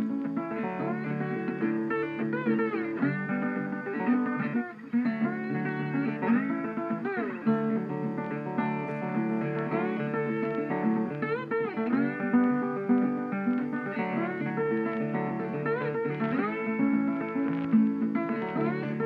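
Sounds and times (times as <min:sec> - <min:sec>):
plucked guitar melody: 0:00.0 - 0:19.0.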